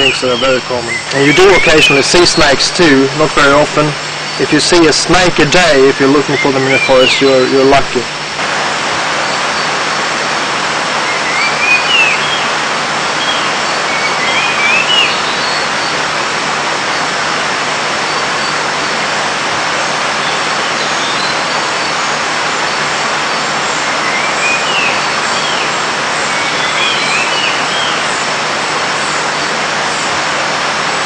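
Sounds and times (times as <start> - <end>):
forest ambience hiss: 0.0 - 31.0
short rising bird call: 11.0 - 12.5.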